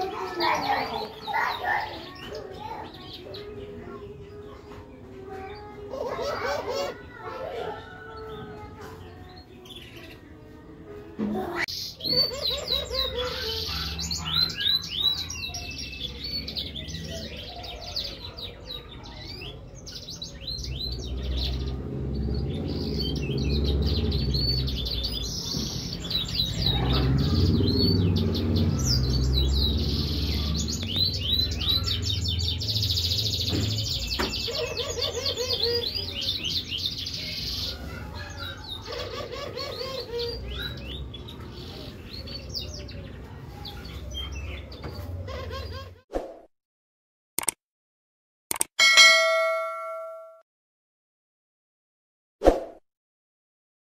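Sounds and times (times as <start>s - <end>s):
finch twittering song: 11.7s - 38.9s.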